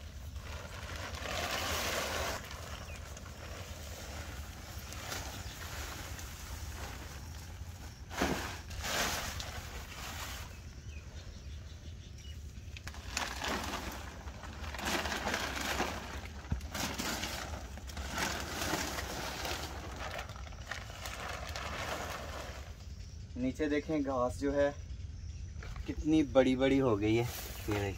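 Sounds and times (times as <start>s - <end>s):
plastic sheeting rustling: 0.0s - 10.7s, 12.8s - 22.8s.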